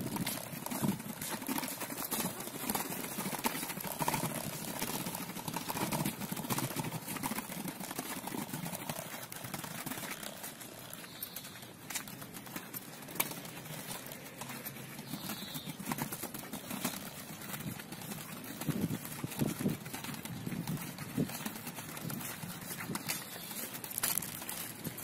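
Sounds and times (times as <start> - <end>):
scooter wheels rattling over paving: 0.0 - 25.0
scuffing steps on pavement: 0.0 - 25.0.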